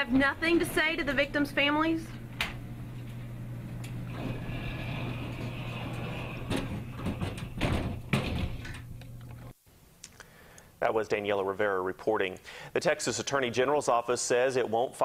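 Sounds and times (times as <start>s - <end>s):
elevator door sliding: 0.0s - 9.0s
steady low hum: 0.0s - 9.6s
knocks: 6.2s - 8.7s.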